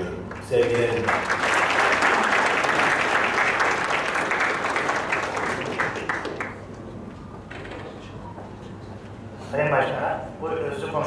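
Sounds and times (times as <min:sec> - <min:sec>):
audience applauding: 0:00.3 - 0:06.9.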